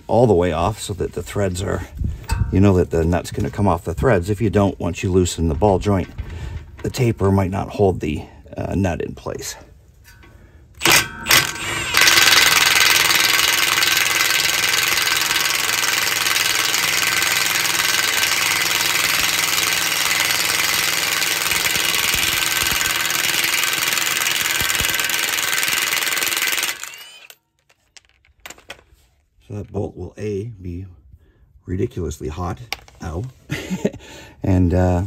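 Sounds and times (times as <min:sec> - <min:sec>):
impact wrench spinning: 0:10.8 - 0:28.8.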